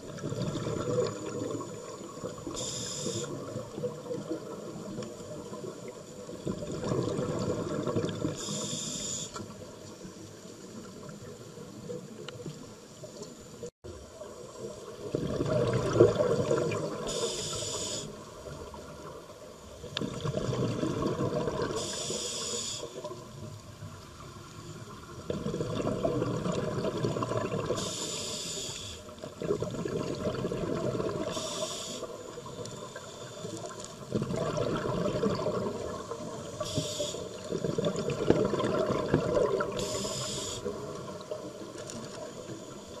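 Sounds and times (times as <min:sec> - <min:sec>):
exhaled air bubbling: 0:00.0 - 0:09.2, 0:14.5 - 0:19.1, 0:19.8 - 0:22.5, 0:24.8 - 0:42.5
regulator hissing inhale: 0:02.5 - 0:03.5, 0:08.4 - 0:09.5, 0:17.0 - 0:18.3, 0:21.8 - 0:23.1, 0:27.8 - 0:29.2, 0:31.3 - 0:33.6, 0:36.5 - 0:37.5, 0:39.8 - 0:40.8.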